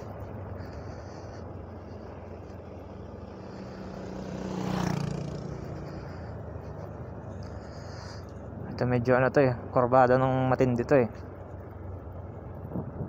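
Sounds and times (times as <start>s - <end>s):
scooter engine running: 0.0s - 8.6s.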